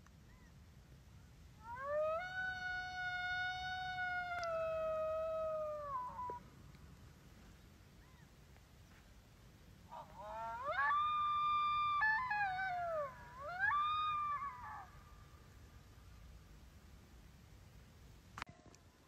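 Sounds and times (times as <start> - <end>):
coyote howling: 1.6 - 6.4, 9.9 - 15.1.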